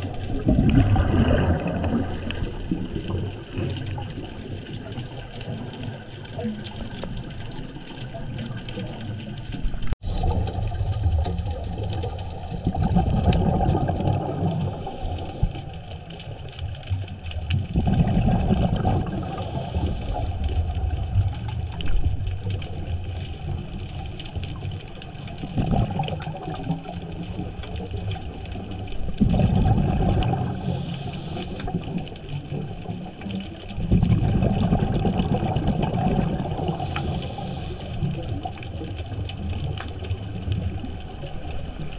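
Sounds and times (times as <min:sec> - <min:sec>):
underwater bubbles rumbling: 0:00.0 - 0:41.9
regulator inhalation hiss: 0:01.3 - 0:02.7, 0:19.2 - 0:20.3, 0:30.5 - 0:31.8, 0:36.7 - 0:38.1.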